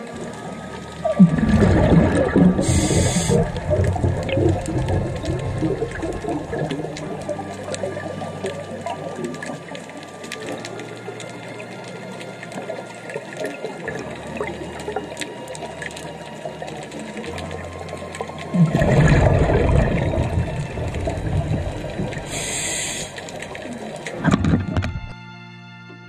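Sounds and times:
faint crackle: 0.0s - 25.2s
underwater exhaled bubbles: 0.0s - 25.2s
hiss of inhaling through regulator: 2.5s - 3.7s, 22.1s - 23.9s.

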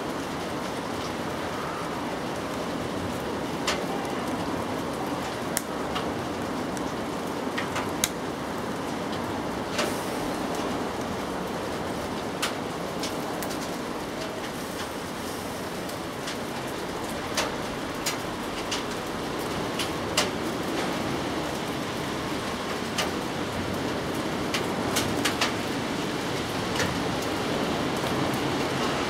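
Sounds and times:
steady rain: 0.0s - 29.0s.

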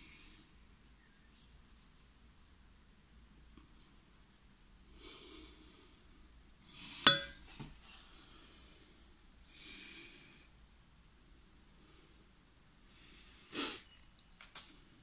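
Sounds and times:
person breathing softly: 4.9s - 10.6s, 11.8s - 14.0s.

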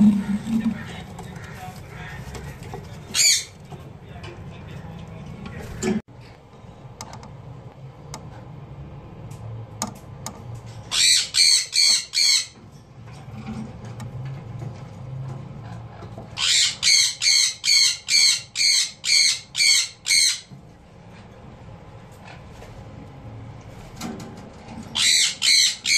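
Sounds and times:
parrot squawking: 0.0s - 3.6s, 10.9s - 12.6s, 16.3s - 20.5s, 24.9s - 25.9s.

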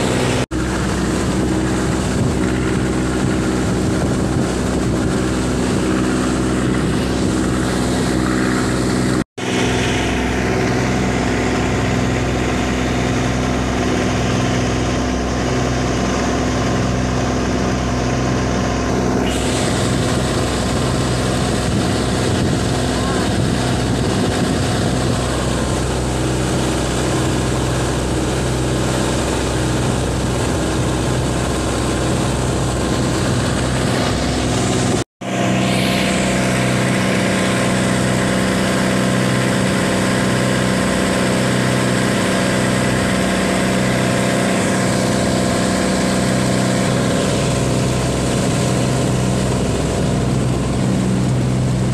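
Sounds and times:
diesel engine running: 0.0s - 51.9s
water rushing past hull: 0.0s - 51.9s.

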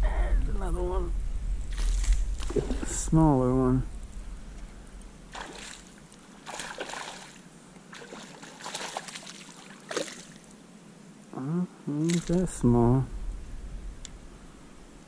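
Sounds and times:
fish splashing and thrashing: 1.7s - 3.0s, 5.3s - 10.5s.

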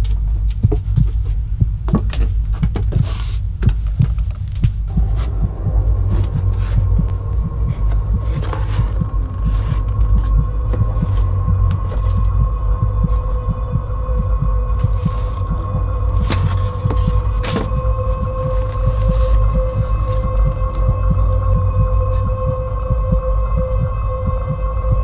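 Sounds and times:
low throbbing rumble: 0.0s - 25.0s
steady hum: 0.0s - 25.0s.

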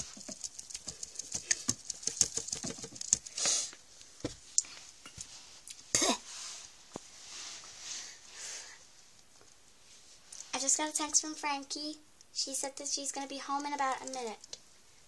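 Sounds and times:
plastic toys clicking and tapping: 0.0s - 3.4s, 13.5s - 14.6s
toy pieces knocking: 0.2s - 3.3s.

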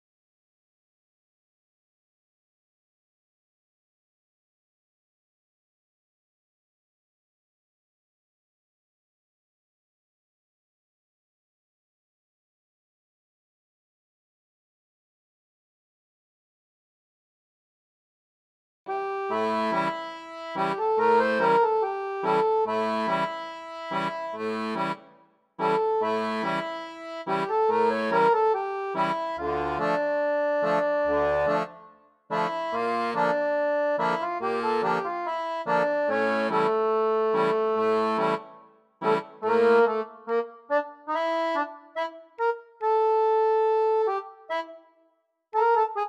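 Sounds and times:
instrumental background music: 19.0s - 45.0s.

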